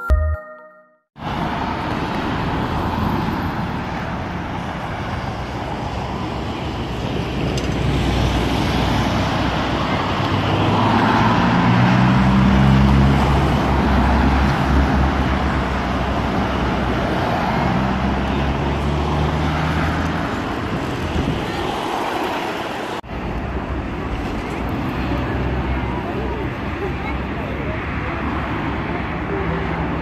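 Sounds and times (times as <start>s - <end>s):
cars passing close by: 1.2s - 30.0s.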